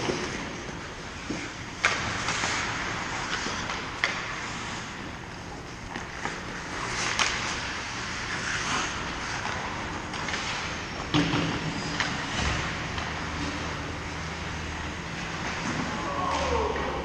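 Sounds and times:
skates scraping on ice: 0.0 - 17.0
stick hitting puck: 8.7 - 13.3.

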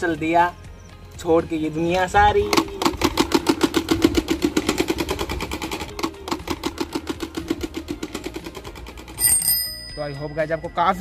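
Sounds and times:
card rattling in bicycle spokes: 2.4 - 9.6.

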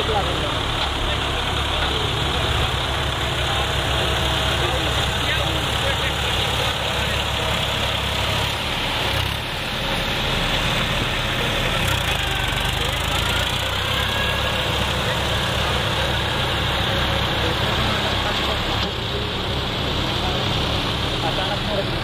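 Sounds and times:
crowd voices: 0.0 - 22.0
tractor diesel engine running: 0.0 - 22.0.

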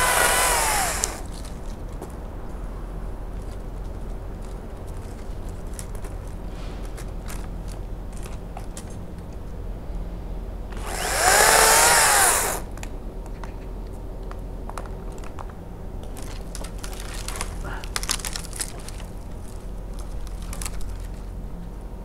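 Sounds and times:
chainsaw motor whine: 0.0 - 1.3, 10.7 - 12.7.

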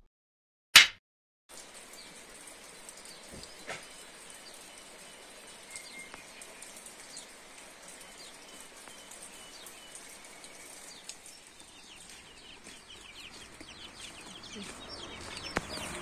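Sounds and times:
light rain on foliage: 1.5 - 16.0
birds chirping and whistling: 3.0 - 7.3, 7.9 - 16.0.

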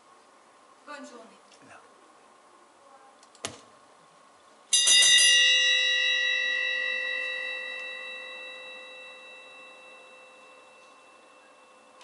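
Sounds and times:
bell ringing: 4.7 - 12.0.

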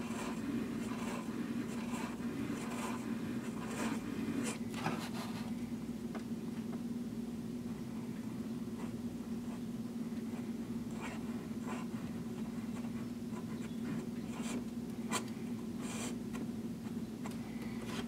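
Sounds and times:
fountain pen nib scratching paper: 0.0 - 5.4
steady low hum: 0.0 - 18.0.

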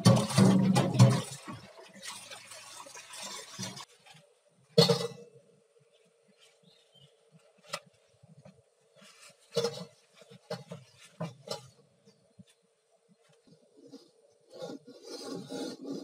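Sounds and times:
tap water running into wok: 0.0 - 3.9.

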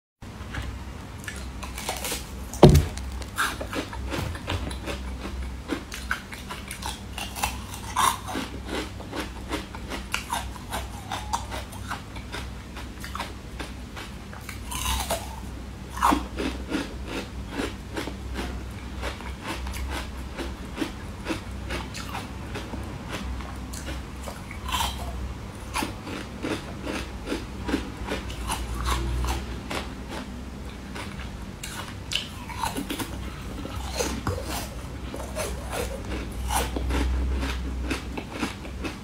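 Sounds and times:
chewing with mouth smacks: 1.2 - 39.0
heavy thump: 2.6 - 3.2.

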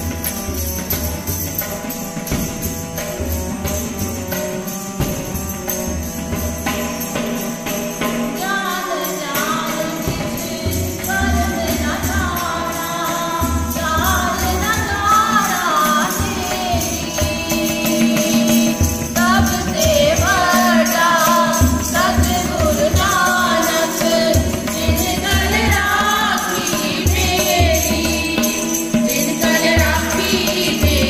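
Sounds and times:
harmonium: 0.0 - 31.0
jingling hand percussion: 0.0 - 31.0
tabla: 0.0 - 31.0
women singing a hymn: 8.4 - 31.0.

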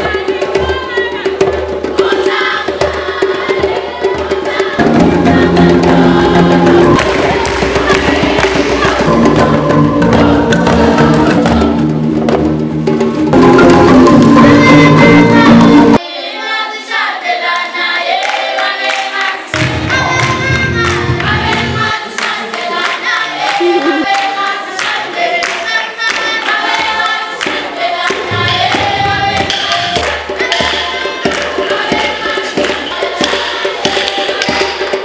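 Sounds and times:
choir singing a melody: 0.0 - 35.0
marimbas playing: 4.8 - 16.0, 19.6 - 21.9, 23.6 - 24.1.

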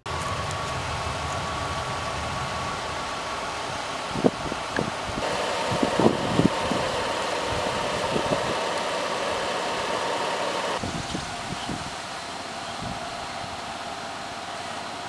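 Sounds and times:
car engine idling: 5.2 - 10.8.

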